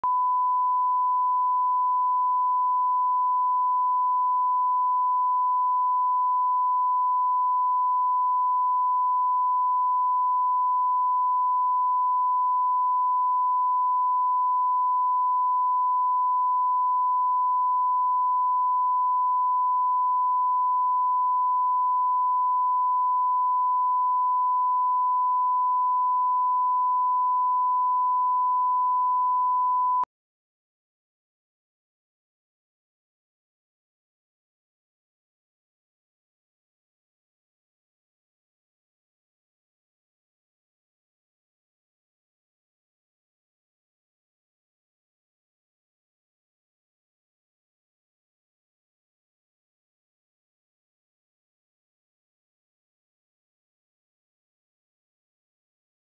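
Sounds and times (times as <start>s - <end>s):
steady test tone beep: 0.0s - 30.1s.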